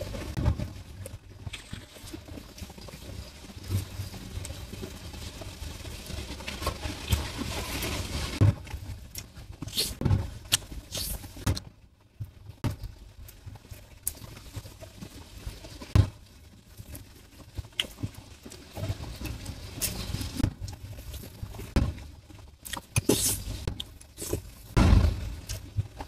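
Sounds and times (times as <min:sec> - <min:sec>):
person chewing: 0:09.1 - 0:11.2, 0:22.6 - 0:24.7.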